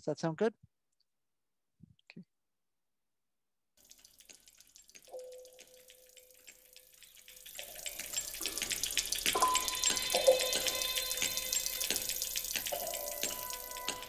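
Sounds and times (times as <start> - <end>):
dense clicking: 3.8 - 14.0
ringing tones: 7.2 - 14.0
rushing water-like noise: 7.6 - 14.0.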